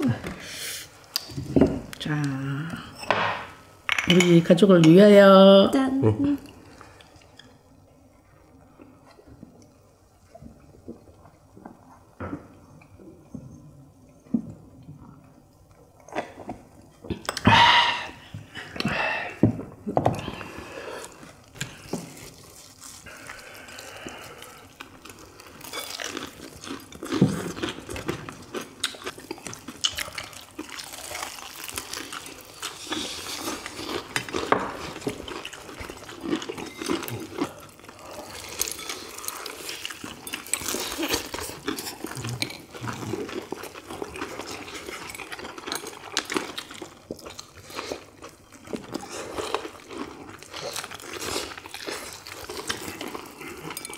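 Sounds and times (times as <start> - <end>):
dishes and glasses clinking: 3.0 - 4.4.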